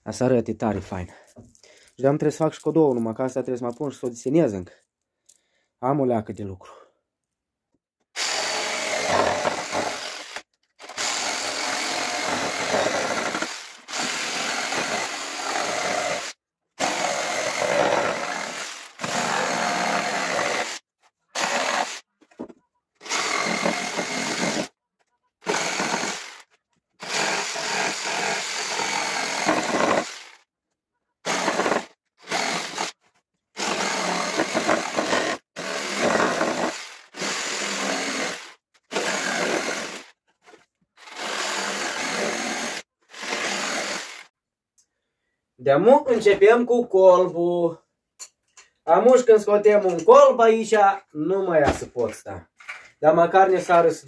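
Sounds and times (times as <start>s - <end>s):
power saw cutting wood: 8.2s - 20.8s, 21.4s - 22.1s, 23.0s - 24.7s, 25.4s - 30.4s, 31.2s - 33.0s, 33.6s - 40.1s, 41.0s - 44.3s.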